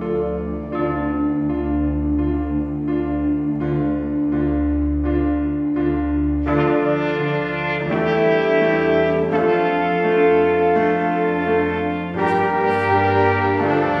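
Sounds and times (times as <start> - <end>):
sustained brass chords: 0.0 - 14.0.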